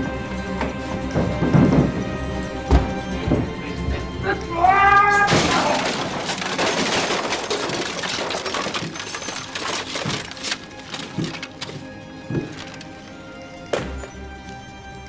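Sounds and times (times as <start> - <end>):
jangling rattling clatter: 1.3 - 4.2, 5.2 - 13.1
loud crash: 5.3 - 10.3.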